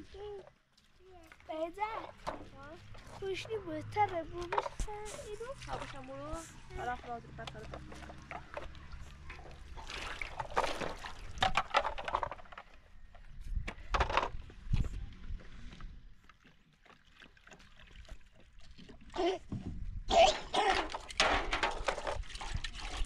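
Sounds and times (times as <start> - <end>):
water sloshing in metal basin: 1.2 - 13.0, 16.1 - 19.5, 20.1 - 23.0.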